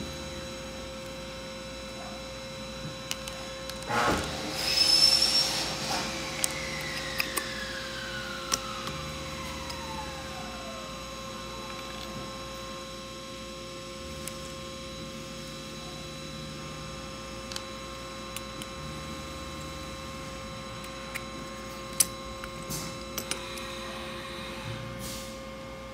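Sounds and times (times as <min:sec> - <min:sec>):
electrical hum: 0:00.0 - 0:25.9
small parts clicking: 0:03.1 - 0:04.0, 0:06.4 - 0:07.7, 0:20.8 - 0:23.7.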